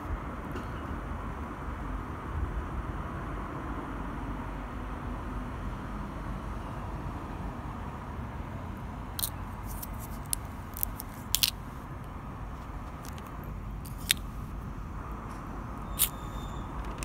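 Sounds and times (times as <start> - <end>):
low outdoor rumble: 0.0 - 17.0.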